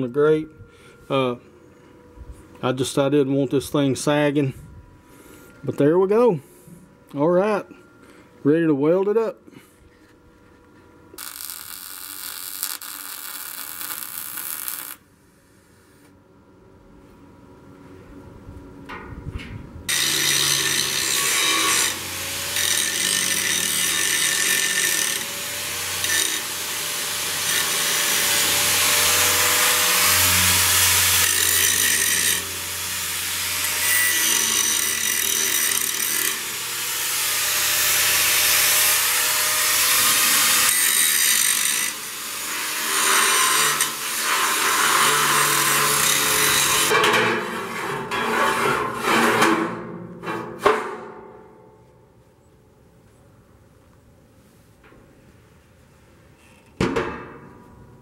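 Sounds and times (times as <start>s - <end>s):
angle grinder grinding steel: 11.2s - 15.0s, 19.9s - 49.4s.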